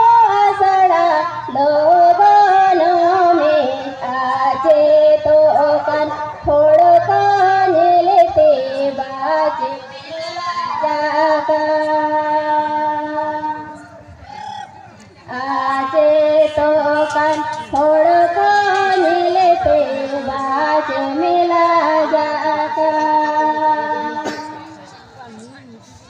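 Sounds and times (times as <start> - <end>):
woman singing into a microphone: 0.0 - 14.1, 15.3 - 24.8.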